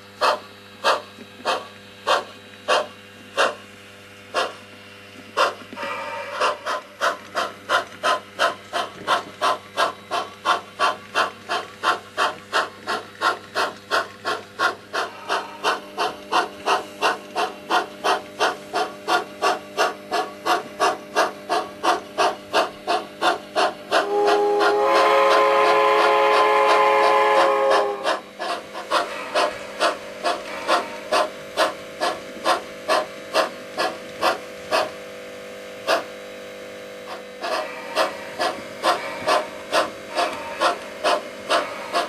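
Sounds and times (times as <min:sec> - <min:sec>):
steam locomotive exhaust chuffs: 0:00.0 - 0:42.0
multi-chime steam whistle: 0:05.8 - 0:06.6, 0:24.0 - 0:28.1.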